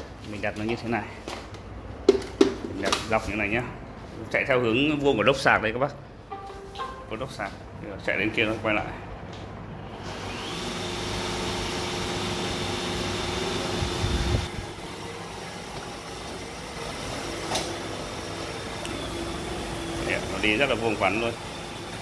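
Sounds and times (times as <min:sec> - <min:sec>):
robot vacuum motor hum: 0:10.0 - 0:22.0.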